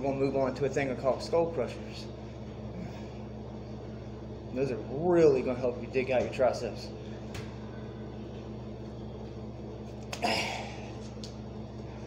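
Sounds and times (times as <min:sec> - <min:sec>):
low room hum: 0:00.0 - 0:12.0.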